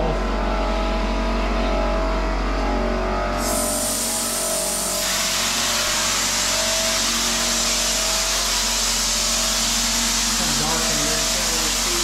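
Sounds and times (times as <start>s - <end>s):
air compressor humming: 0.0s - 12.0s
texture spray gun hissing: 3.4s - 12.0s.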